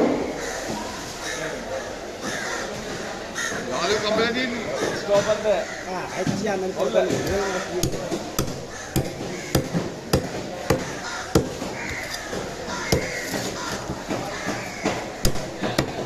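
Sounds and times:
cleaver chopping fish on wood: 0:07.0 - 0:16.0.

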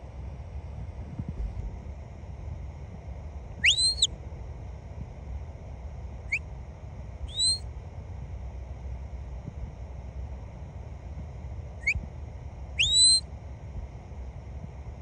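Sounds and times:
shepherd's whistle blasts: 0:03.6 - 0:04.1, 0:07.3 - 0:07.6, 0:12.8 - 0:13.2.

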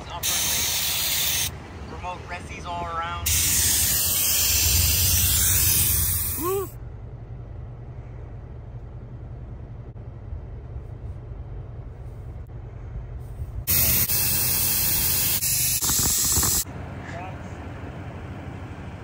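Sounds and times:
air hissing out of tire valve: 0:00.2 - 0:01.5, 0:03.3 - 0:06.7, 0:13.2 - 0:16.6
low steady hum: 0:01.4 - 0:14.0.

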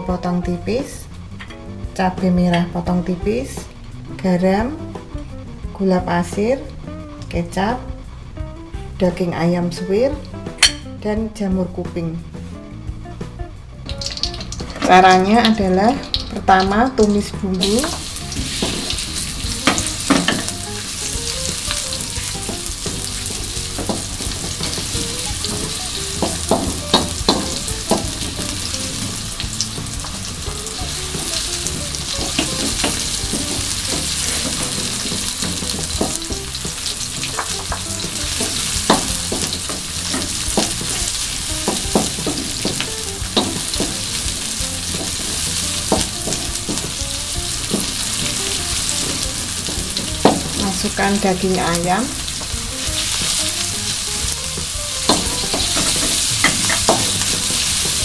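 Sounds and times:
aromatics sizzling in hot oil: 0:00.0 - 0:11.1, 0:11.9 - 0:58.0
spatula scraping a wok: 0:17.6 - 0:51.4, 0:52.2 - 0:58.0.

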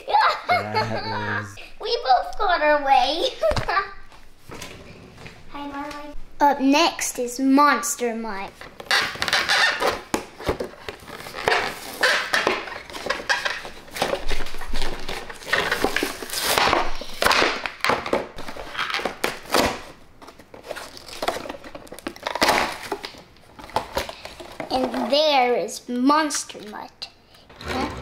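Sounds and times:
plastic packaging crinkling: 0:08.8 - 0:17.8, 0:18.4 - 0:24.8.

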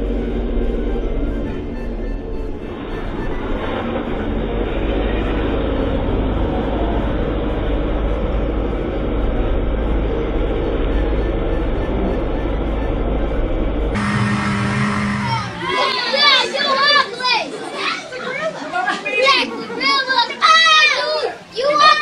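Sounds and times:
motorboat engine rumble: 0:00.0 - 0:15.8.

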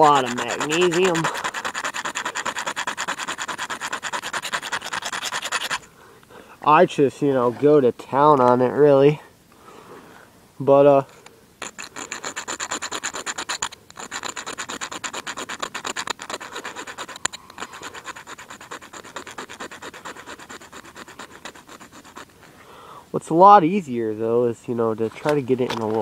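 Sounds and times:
striker scraping magnesium block: 0:00.0 - 0:05.8, 0:11.6 - 0:22.3.

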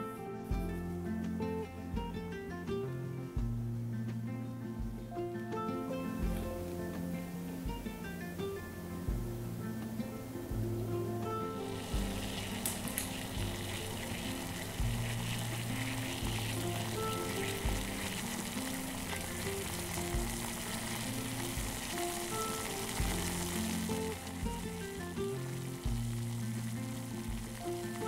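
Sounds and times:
background music with bass: 0:00.0 - 0:28.0
broth boiling in a pot: 0:06.0 - 0:28.0.

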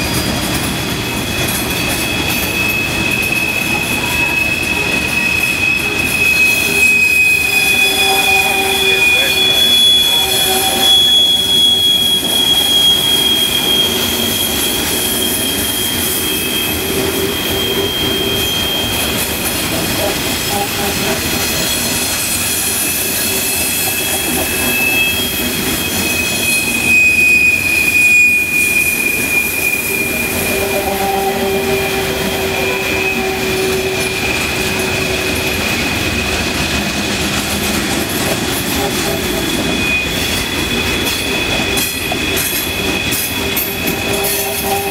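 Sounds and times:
train wheels rumbling on track: 0:00.0 - 0:44.9
train wheels squealing: 0:00.0 - 0:44.9.

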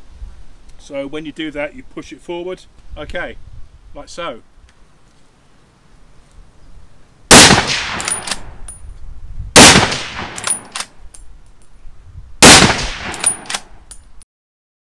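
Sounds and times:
rifle shots echoing: 0:07.3 - 0:08.6, 0:09.6 - 0:10.8, 0:12.4 - 0:13.7
sharp metallic clicks: 0:07.3 - 0:08.8, 0:09.6 - 0:11.3, 0:12.4 - 0:14.1.

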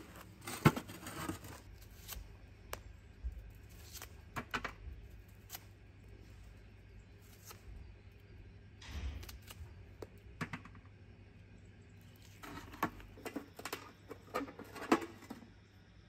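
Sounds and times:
knife scraping skin: 0:03.7 - 0:04.2.

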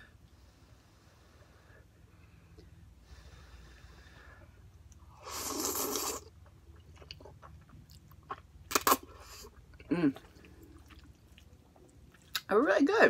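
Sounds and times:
faint breathing: 0:00.0 - 0:04.8
slurping noodles: 0:05.1 - 0:06.4.

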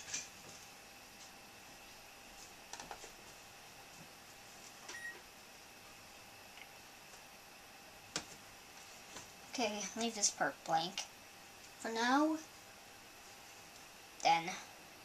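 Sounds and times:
faint high whine: 0:00.0 - 0:15.0.

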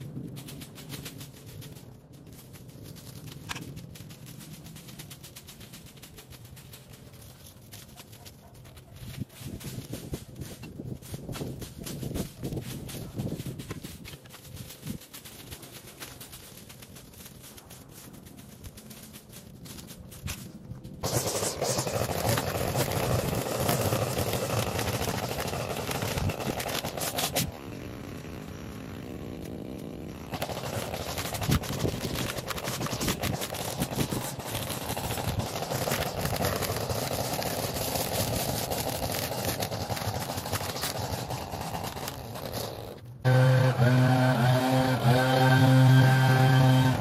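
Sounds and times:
small gas engine running: 0:21.0 - 0:47.0.

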